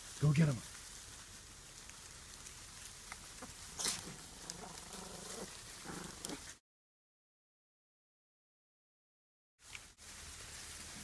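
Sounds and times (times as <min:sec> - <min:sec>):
straw rustling: 0:00.0 - 0:06.6, 0:09.6 - 0:11.0
piglets grunting: 0:03.4 - 0:06.5.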